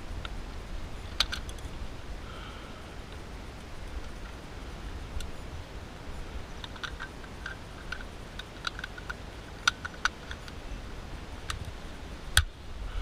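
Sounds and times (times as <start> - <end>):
light irregular clicks: 6.6 - 10.6.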